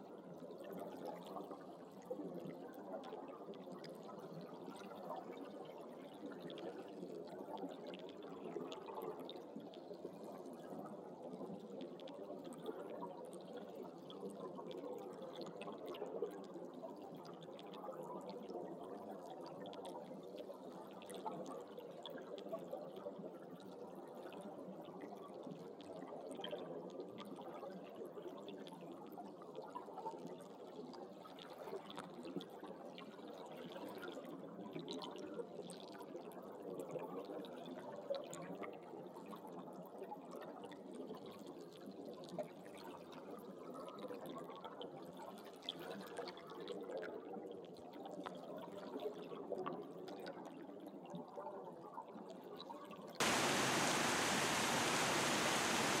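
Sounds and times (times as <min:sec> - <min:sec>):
loud rush of water: 0:53.2 - 0:56.0.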